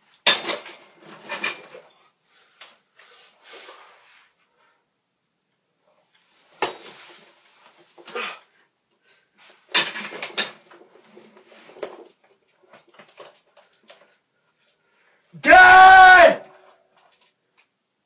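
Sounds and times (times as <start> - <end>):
rustling and clatter: 0.1 - 3.2, 6.0 - 8.1, 9.4 - 14.8.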